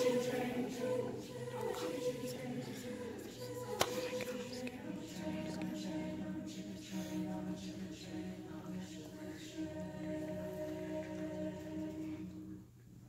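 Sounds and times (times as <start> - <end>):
choir singing a sustained chord: 0.0 - 12.7.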